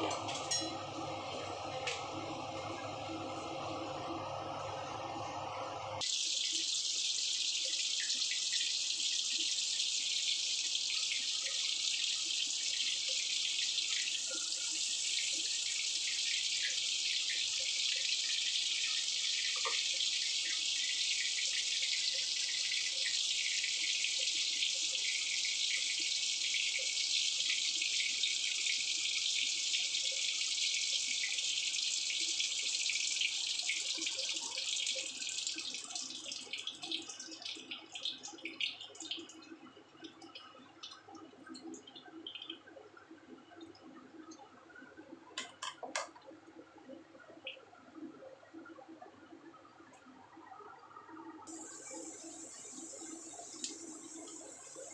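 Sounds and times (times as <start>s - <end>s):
butter sizzling in a wok: 6.0s - 35.8s, 51.5s - 54.9s.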